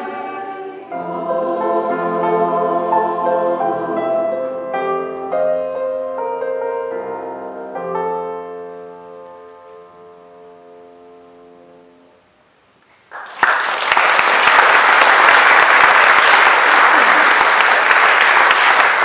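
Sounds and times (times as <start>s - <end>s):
held piano chord: 0.0s - 12.2s
audience applause: 13.1s - 19.0s.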